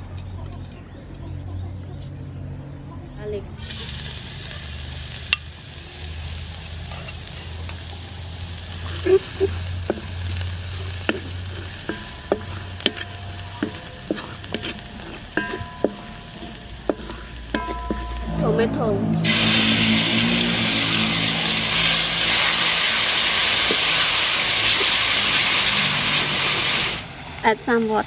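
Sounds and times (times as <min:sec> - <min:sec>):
garlic sizzling in oil: 0:03.6 - 0:28.0
wooden spatula scraping a wok: 0:08.7 - 0:27.0.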